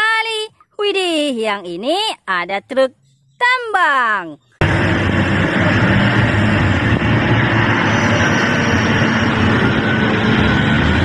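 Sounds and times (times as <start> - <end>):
haul truck diesel engine: 4.6 - 11.0.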